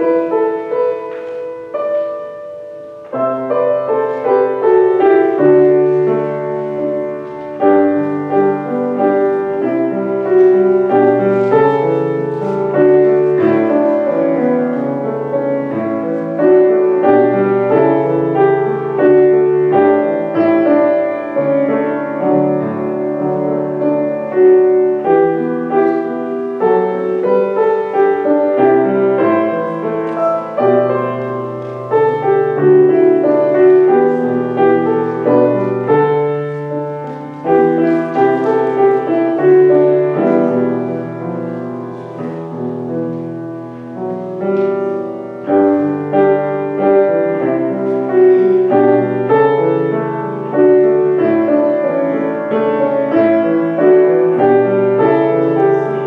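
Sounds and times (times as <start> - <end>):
slow quiet piano chords: 0.0 - 56.0.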